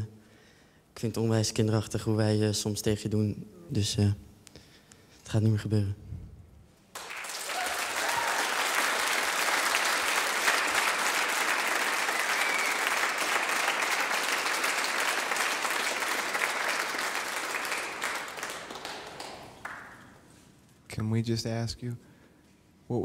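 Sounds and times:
crowd applause: 7.0s - 20.2s.

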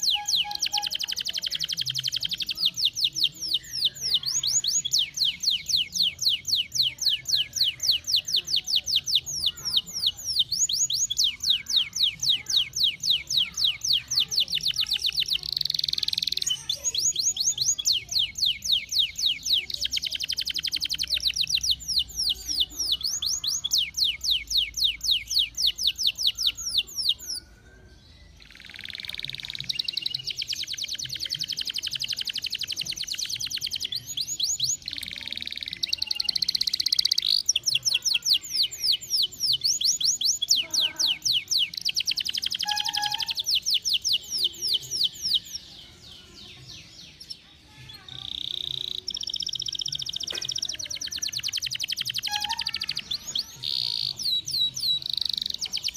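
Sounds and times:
canary singing trills: 0.0s - 55.9s.

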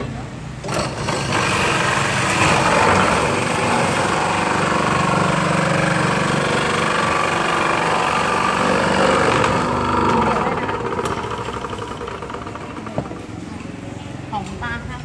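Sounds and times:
ice shaver grinding ice: 0.6s - 13.0s.

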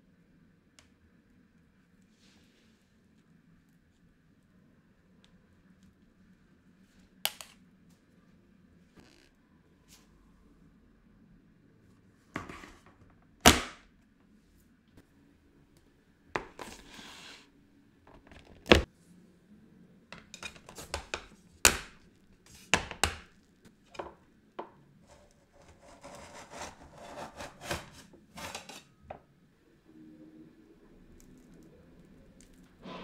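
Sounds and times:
scraping and rubbing: 16.4s - 17.5s, 25.0s - 29.0s.

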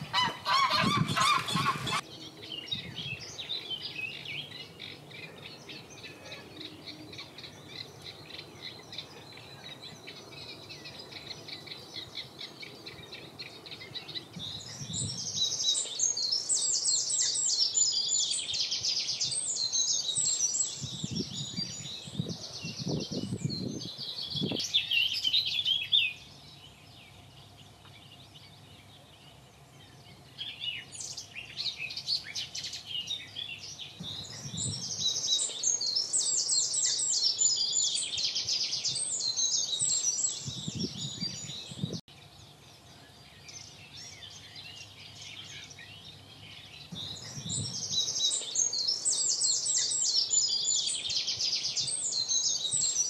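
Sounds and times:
songbirds chirping and trilling: 0.0s - 53.0s.

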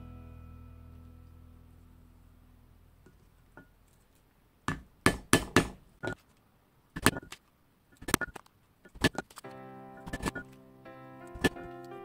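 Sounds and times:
mallet striking chisel on leather: 4.7s - 5.8s.

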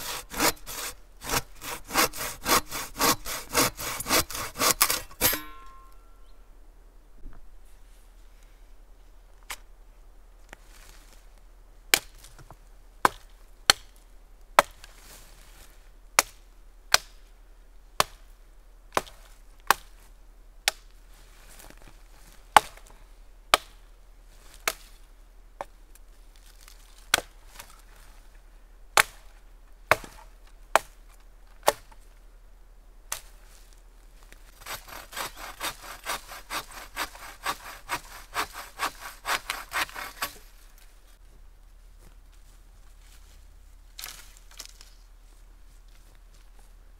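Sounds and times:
bow saw cutting wood: 0.0s - 5.6s, 34.6s - 40.6s
dry branches snapping: 44.0s - 45.0s.

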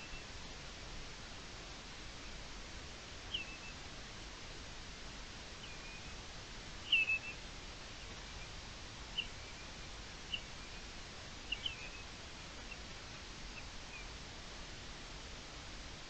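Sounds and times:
redshank whistled calls: 0.0s - 0.4s, 3.2s - 3.8s, 5.6s - 14.2s
steady hiss: 0.0s - 16.0s.

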